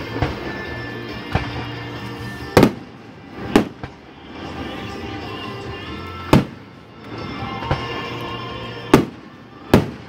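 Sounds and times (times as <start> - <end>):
fireworks bursting: 1.3 - 4.7, 6.2 - 6.8, 8.8 - 10.0.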